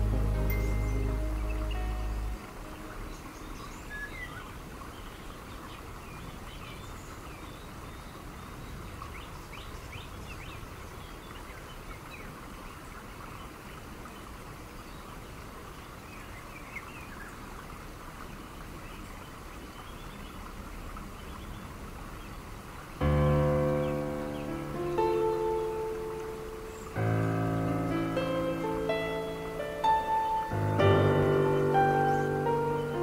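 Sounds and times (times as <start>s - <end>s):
bird chirps: 0.0s - 5.3s, 28.2s - 33.0s
steady background hiss: 0.0s - 33.0s.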